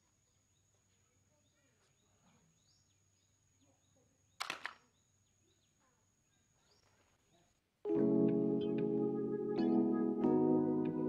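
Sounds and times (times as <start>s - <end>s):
faint bird chirps: 0.0s - 7.6s.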